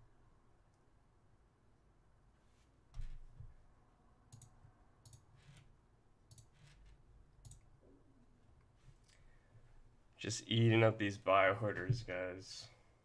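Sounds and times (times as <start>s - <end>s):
mouse and keyboard clicks: 7.4s - 7.7s.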